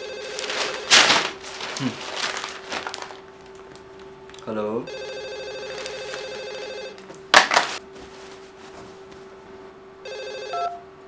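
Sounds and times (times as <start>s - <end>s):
electronic telephone ringing: 0.0s - 0.9s, 4.9s - 7.0s, 10.0s - 10.9s
faint steady hum: 0.0s - 11.0s.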